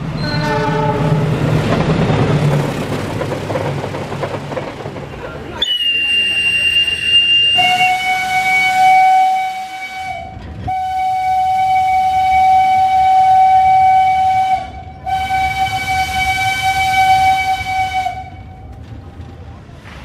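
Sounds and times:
steam locomotive whistle blasts: 0:00.2 - 0:01.2, 0:05.6 - 0:18.6
shrill hand whistle: 0:05.6 - 0:08.7.

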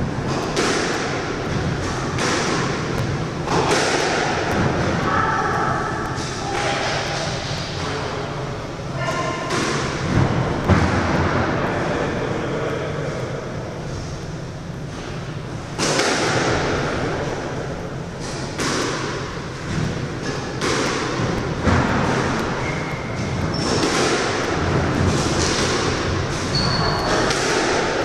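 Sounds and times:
squash ball and racket thuds: 0:00.0 - 0:08.2, 0:09.0 - 0:11.7, 0:14.8 - 0:28.0
shoes squeaking on wooden floor: 0:26.5 - 0:27.3.

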